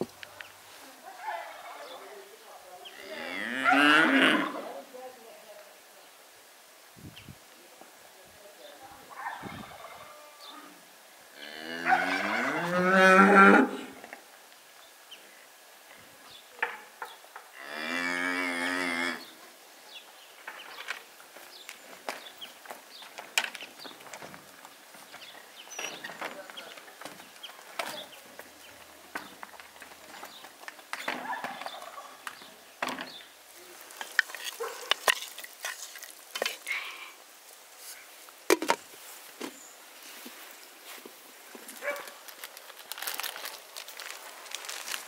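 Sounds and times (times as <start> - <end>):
cow mooing: 3.0 - 4.6, 11.4 - 13.9, 17.6 - 19.3
wooden spoon stirring broth: 33.9 - 36.9.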